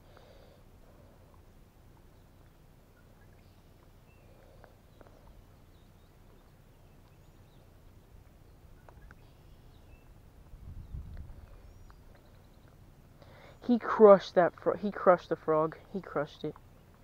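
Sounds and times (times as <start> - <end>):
low steady rumble: 0.0 - 17.0
faint ticks: 3.8 - 5.4.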